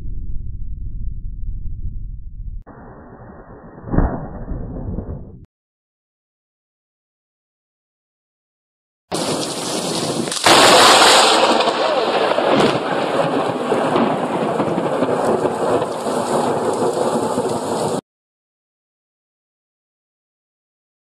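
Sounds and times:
heavy rain: 0:09.1 - 0:18.0
loud thunderclap: 0:09.1 - 0:18.0
wind: 0:09.1 - 0:18.0.

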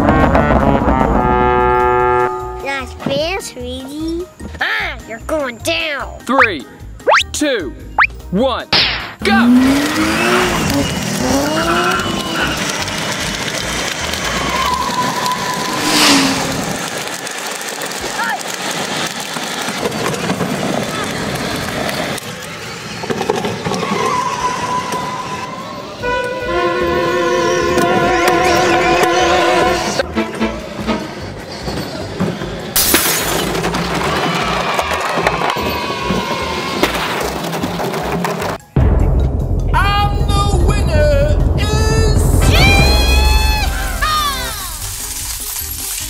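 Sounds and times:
background music with steady beat: 0:01.3 - 0:09.3
splintering crash sound effect: 0:08.8 - 0:18.0, 0:36.8 - 0:46.0
toy trucks rolling on asphalt: 0:09.4 - 0:26.3, 0:30.6 - 0:38.7, 0:44.0 - 0:46.0
hiss rush: 0:43.0 - 0:46.0.

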